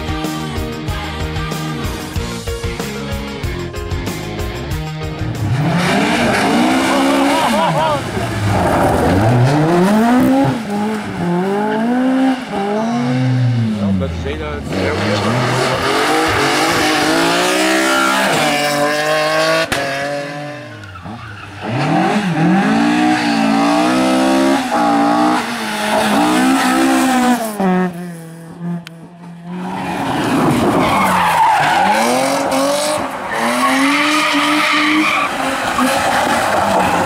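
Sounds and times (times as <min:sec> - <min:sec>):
rally car engines revving: 0:05.1 - 0:37.0
tyres skidding on gravel: 0:05.8 - 0:13.0, 0:29.5 - 0:37.0.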